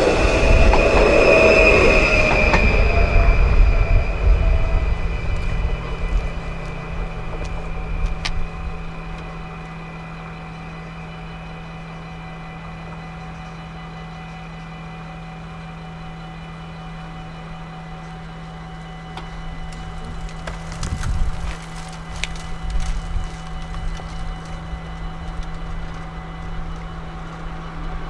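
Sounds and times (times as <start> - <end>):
low rumble: 0.0 - 13.5, 19.0 - 28.0
level crossing warning bell: 4.5 - 20.5, 23.2 - 28.0.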